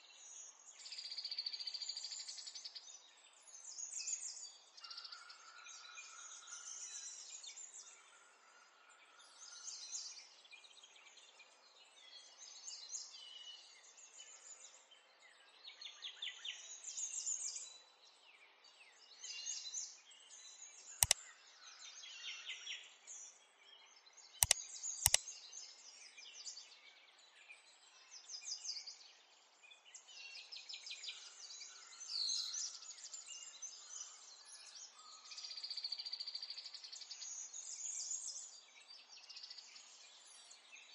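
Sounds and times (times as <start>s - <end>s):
sharp clicks: 24.4s - 25.2s.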